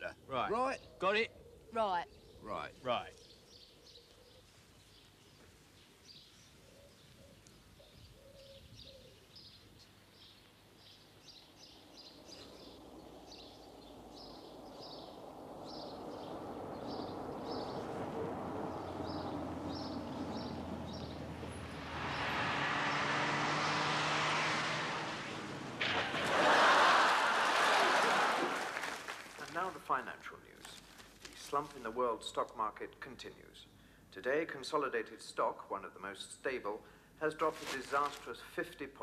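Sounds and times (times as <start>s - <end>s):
bird chirping: 0.0s - 23.1s
car approaching: 10.2s - 29.2s.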